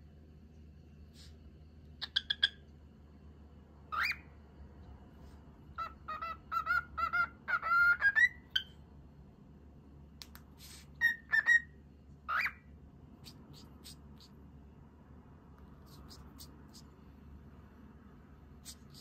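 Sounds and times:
cockatiel whistling and chattering: 0:02.0 - 0:02.6, 0:03.9 - 0:04.3, 0:05.7 - 0:08.8, 0:10.6 - 0:14.4, 0:15.8 - 0:17.0, 0:18.6 - 0:19.0.

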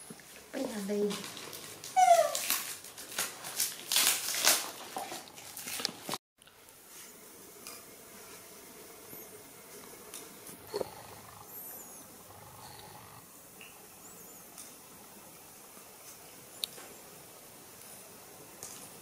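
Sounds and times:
young animal squealing: 0:10.7 - 0:13.2.

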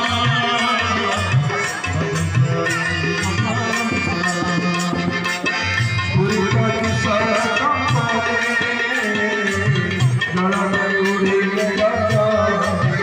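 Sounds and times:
hand drums struck: 0:00.0 - 0:08.3.

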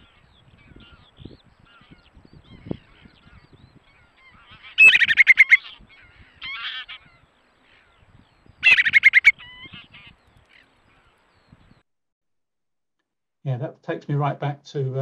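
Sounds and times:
soft bird call: 0:00.0 - 0:11.8
bird rippling whistle: 0:04.6 - 0:05.7, 0:08.6 - 0:09.7.

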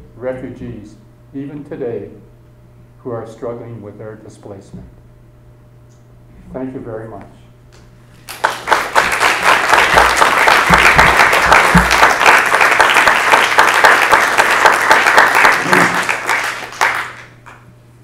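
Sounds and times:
audience applauding: 0:08.2 - 0:17.6.

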